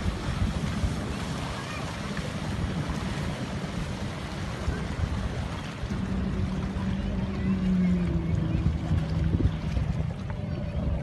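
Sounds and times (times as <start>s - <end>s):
jet ski engine running: 0.0s - 11.0s
wind buffeting microphone: 0.0s - 11.0s.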